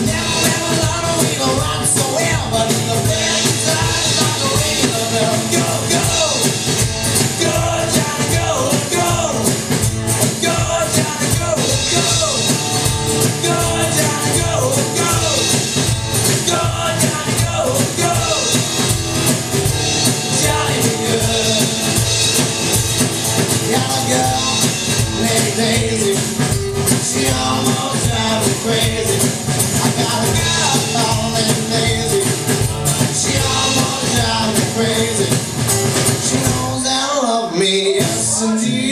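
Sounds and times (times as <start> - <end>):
person singing: 0.0 - 9.6, 13.2 - 18.6, 20.2 - 22.1, 23.4 - 38.9
drum kit beat: 0.0 - 37.0, 37.9 - 38.9
strummed acoustic guitar: 0.0 - 38.9.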